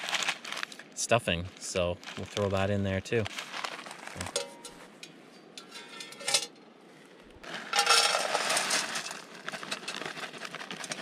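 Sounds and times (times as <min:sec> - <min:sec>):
foil pouch crinkling: 0:00.0 - 0:00.9, 0:01.6 - 0:04.4, 0:07.4 - 0:11.0
dry mix rattling into metal pot: 0:07.5 - 0:11.0.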